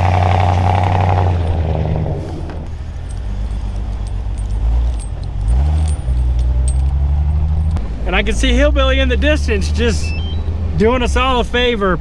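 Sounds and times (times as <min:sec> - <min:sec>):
vehicle engine running: 0:00.0 - 0:12.0
tyre chains clinking: 0:02.7 - 0:07.8.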